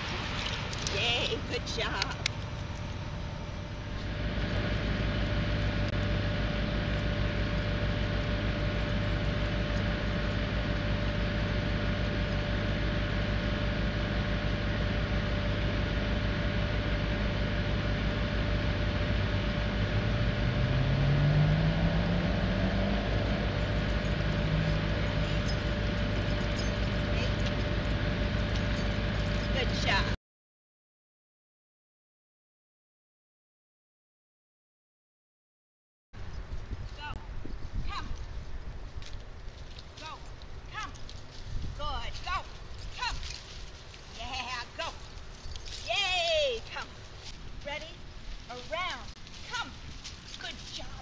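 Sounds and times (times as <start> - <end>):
mechanical hum: 0.0 - 30.2
vehicle engine revving: 3.8 - 29.5.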